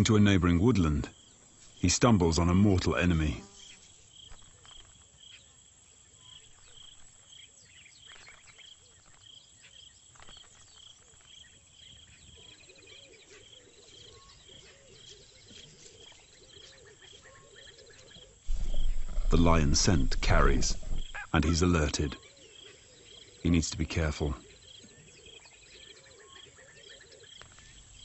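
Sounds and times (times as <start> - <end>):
insect chirping: 0.0 - 28.0
bird chirps: 6.1 - 28.0
low wavering calls: 18.5 - 22.2.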